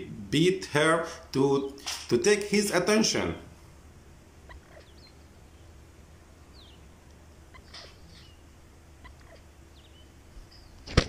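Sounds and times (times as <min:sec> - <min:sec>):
low outdoor hum: 0:00.0 - 0:11.0
high bird chirps sliding down: 0:04.4 - 0:05.8.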